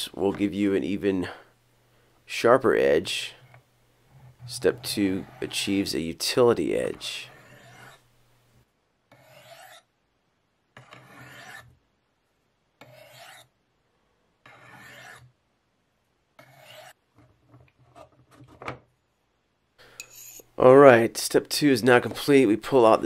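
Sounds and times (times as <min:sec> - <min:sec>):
knife sharpening on ceramic stone: 0:07.3 - 0:08.0, 0:09.1 - 0:09.9, 0:10.8 - 0:11.7, 0:12.8 - 0:13.5, 0:14.5 - 0:15.2, 0:16.4 - 0:17.0, 0:20.0 - 0:20.5.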